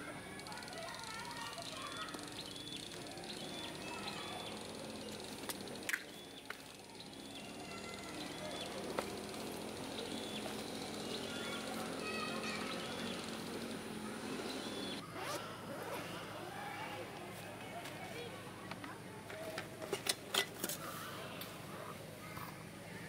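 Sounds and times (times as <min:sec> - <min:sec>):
small bird chirping: 0:01.4 - 0:05.3, 0:06.0 - 0:15.0.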